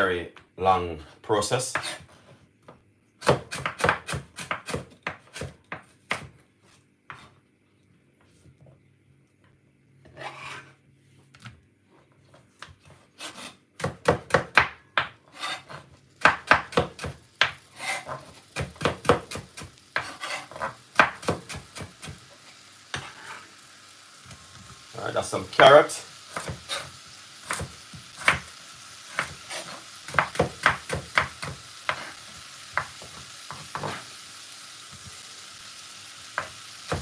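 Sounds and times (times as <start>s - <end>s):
knife scrape: 1.7s - 2.4s, 10.0s - 10.8s, 12.8s - 13.6s, 15.2s - 15.9s, 17.7s - 18.4s, 20.0s - 20.8s, 22.5s - 23.6s, 26.3s - 27.6s, 29.1s - 30.0s, 31.9s - 32.2s, 33.7s - 34.2s
knife chopping on wooden board: 3.2s - 6.3s, 13.4s - 22.2s, 26.3s - 26.8s, 27.5s - 28.4s, 29.2s - 32.1s.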